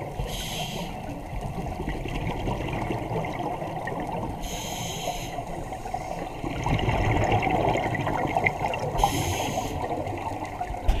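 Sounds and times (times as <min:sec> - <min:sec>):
hissing regulator inhale: 0:00.2 - 0:01.1, 0:04.4 - 0:06.3, 0:09.0 - 0:10.0
bubbly rush of exhaled air: 0:05.8 - 0:11.0.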